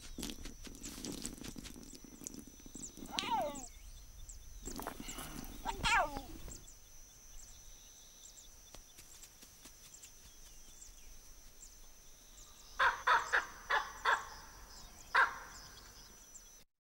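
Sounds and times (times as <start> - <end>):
baboon barking: 3.1 - 3.7, 5.2 - 6.5, 12.8 - 14.4, 15.2 - 15.5.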